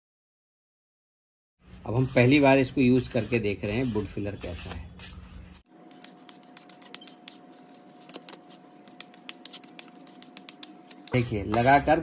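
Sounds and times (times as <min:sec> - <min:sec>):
putty knives scraping on board: 0:01.9 - 0:12.0.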